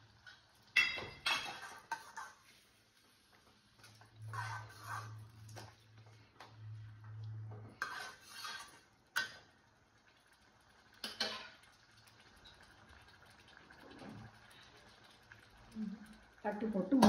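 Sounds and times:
steel spoon scraping a pot: 0.8s - 2.6s, 4.2s - 5.6s, 7.7s - 9.3s.

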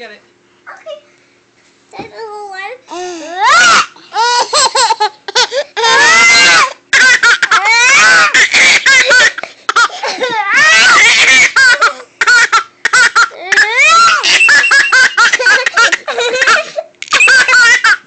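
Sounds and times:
baby squealing laughs: 3.4s - 18.0s
baby chuckling: 14.1s - 18.0s.

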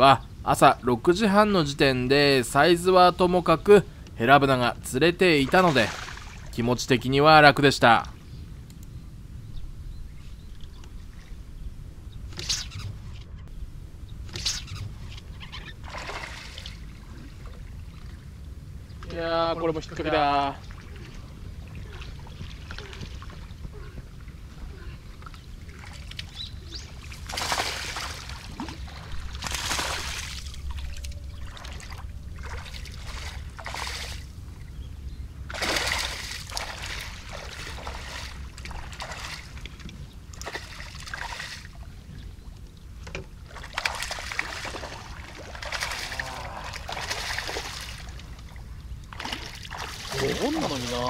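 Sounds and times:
fish thrashing and splashing: 15.7s - 17.6s, 25.6s - 34.3s, 35.5s - 41.8s, 43.4s - 51.0s.

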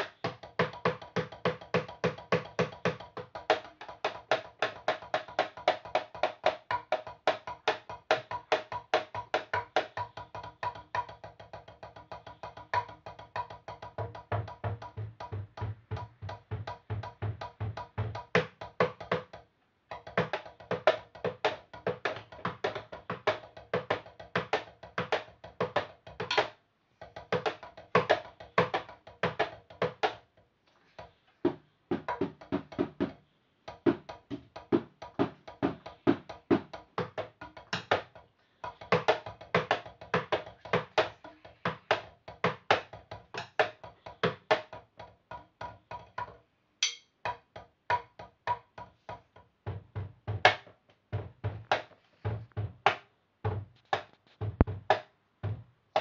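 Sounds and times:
drumsticks on practice pad: 46.8s - 47.4s.

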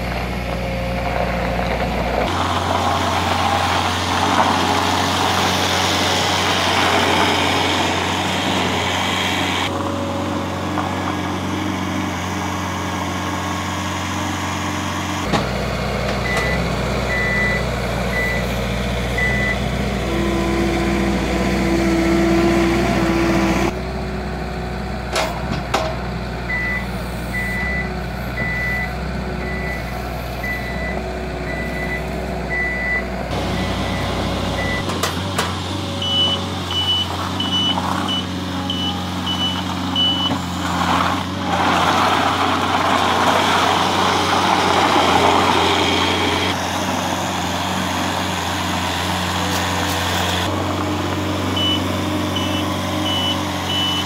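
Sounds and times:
loader engine running: 0.0s - 54.0s
reversing beeper: 16.2s - 18.6s, 19.2s - 19.8s, 26.5s - 34.9s, 36.0s - 40.4s, 51.5s - 54.0s.

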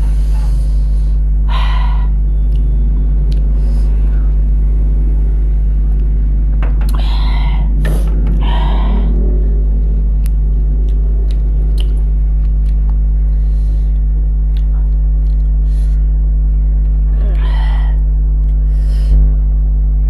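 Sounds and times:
soft breathy sounds: 0.0s - 2.3s, 3.4s - 4.5s
loud mains hum: 0.0s - 20.0s.

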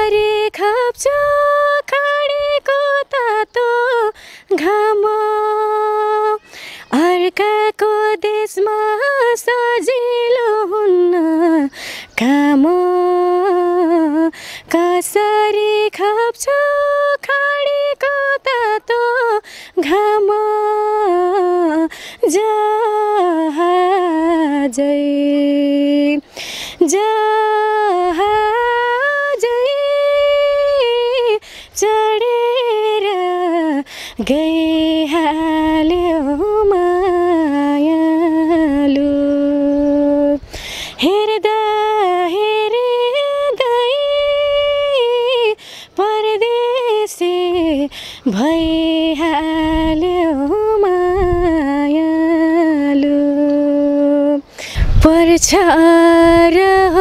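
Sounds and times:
woman singing unaccompanied: 0.0s - 57.0s
low rumble on microphone: 47.5s - 54.2s, 54.8s - 57.0s.

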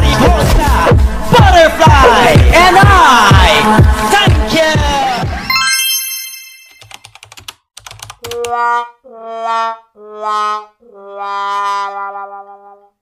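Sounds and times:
keyboard typing clicks: 6.7s - 8.5s
sad trombone notes: 8.3s - 12.9s.

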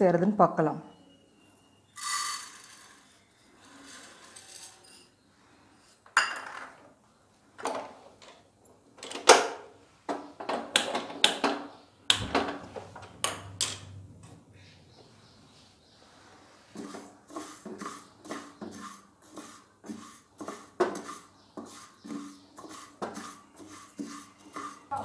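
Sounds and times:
kitchenware clicks and clatters: 6.0s - 7.0s.

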